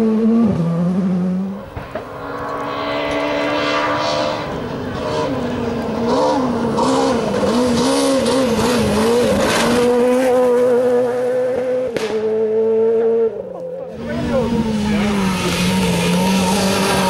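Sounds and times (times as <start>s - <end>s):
rally car engine at high revs: 0.0s - 17.0s
sharp crack: 11.9s - 12.2s.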